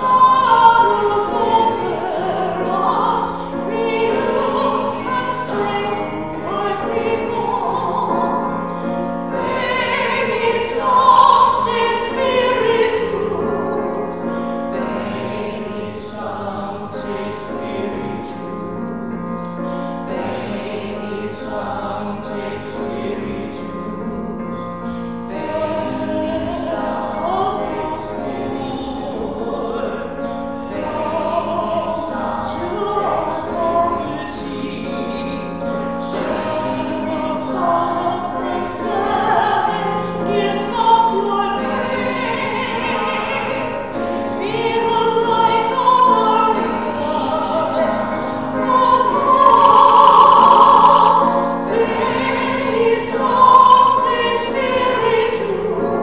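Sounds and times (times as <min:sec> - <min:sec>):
church choir singing a hymn: 0:00.0 - 0:56.0.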